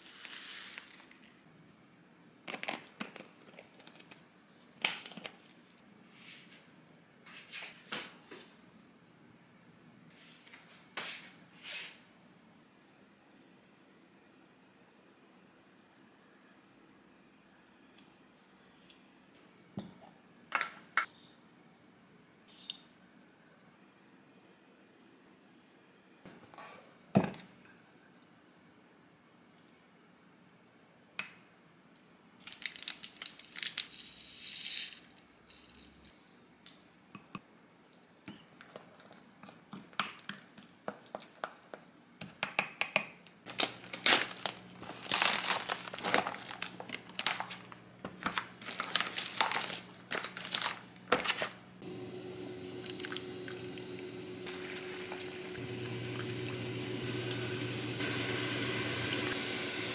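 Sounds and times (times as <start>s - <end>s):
plastic film crinkling and tearing: 32.4s - 33.9s, 43.5s - 51.6s
water boiling in a pot: 51.8s - 59.9s.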